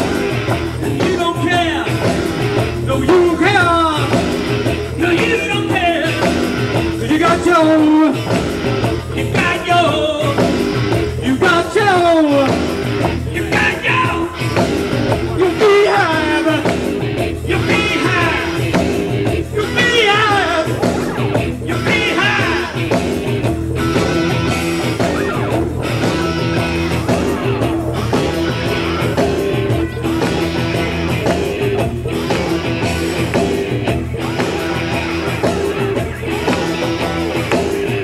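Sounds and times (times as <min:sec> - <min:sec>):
person singing: 0:00.0 - 0:12.6, 0:13.2 - 0:23.1, 0:24.3 - 0:33.2
live rock band playing: 0:00.0 - 0:38.0
sliding guitar notes: 0:00.0 - 0:38.0.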